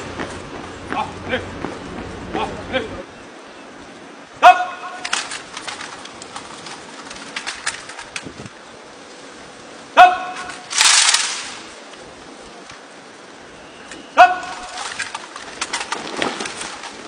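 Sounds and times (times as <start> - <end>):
shouted command: 4.4 - 5.1, 9.9 - 10.7, 14.1 - 14.9
rifles and boots clattering: 5.0 - 8.3, 14.4 - 17.0.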